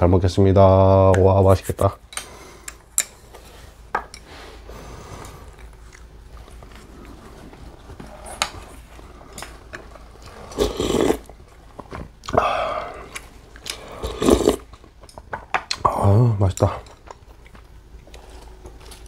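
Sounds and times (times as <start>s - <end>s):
quiet chewing: 5.0s - 15.9s, 16.6s - 19.0s
loud slurps of soup: 10.3s - 11.3s, 13.8s - 14.7s.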